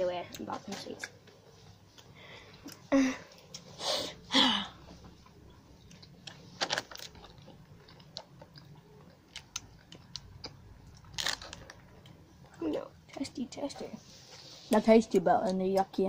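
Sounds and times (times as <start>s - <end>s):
plastic packet crinkling: 6.2s - 8.5s, 10.9s - 11.8s.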